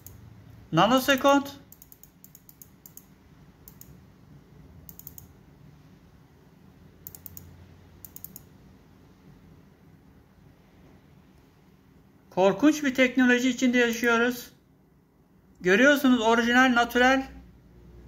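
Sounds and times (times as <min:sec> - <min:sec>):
faint low hum: 0:00.0 - 0:18.0
quick light clicks: 0:01.7 - 0:03.1, 0:03.7 - 0:04.0, 0:04.9 - 0:05.3, 0:07.0 - 0:08.5.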